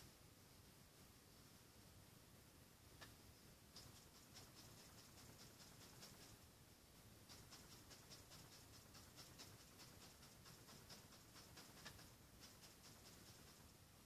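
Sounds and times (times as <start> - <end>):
paintbrush dabbing on canvas: 3.0 - 6.5, 7.2 - 13.8.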